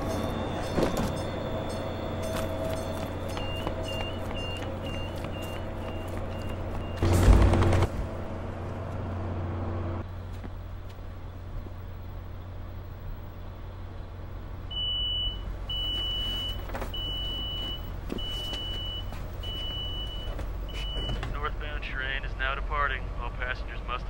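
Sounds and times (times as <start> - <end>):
train car rumble: 0.0 - 24.0
door warning beeps: 0.1 - 7.2, 14.7 - 21.4.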